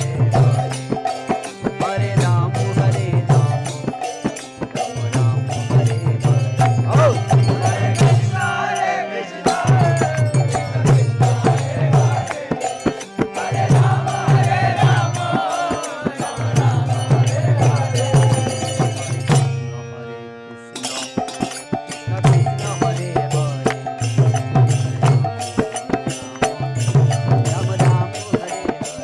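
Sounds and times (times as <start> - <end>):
voices singing a chant: 0.0 - 19.4
sharp percussion strokes: 0.0 - 19.5, 20.8 - 29.0
rhythmic drum beat: 0.0 - 19.6, 20.8 - 29.0.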